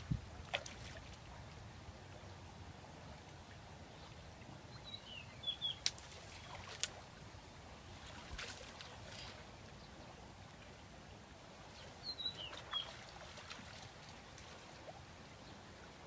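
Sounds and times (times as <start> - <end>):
bird chirps: 4.8 - 5.9
water sloshing: 12.3 - 15.0.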